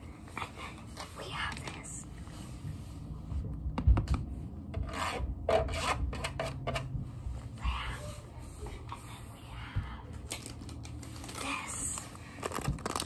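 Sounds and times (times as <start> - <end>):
low handling rumble: 6.7 - 13.0.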